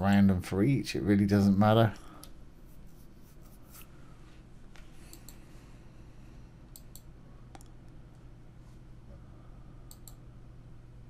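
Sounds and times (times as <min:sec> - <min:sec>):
low electrical hum: 0:00.0 - 0:11.0
faint computer mouse clicks: 0:05.1 - 0:05.4, 0:06.7 - 0:07.8, 0:09.9 - 0:10.2.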